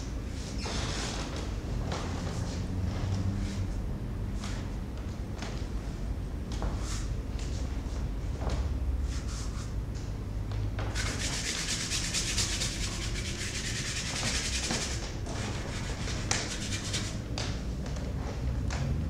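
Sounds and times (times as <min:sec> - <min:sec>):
bristle brush scrubbing canvas: 0:11.0 - 0:17.2.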